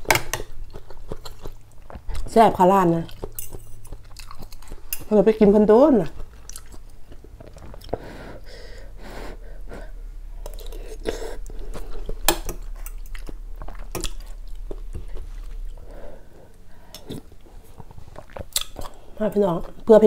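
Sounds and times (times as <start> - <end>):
chewing: 0.4 - 5.1, 6.0 - 8.1, 10.4 - 15.9, 16.5 - 19.0.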